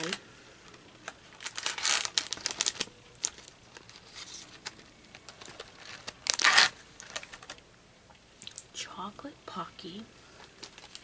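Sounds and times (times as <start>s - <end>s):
cardboard box and foil bag crinkling: 0.0s - 7.6s, 10.4s - 11.0s.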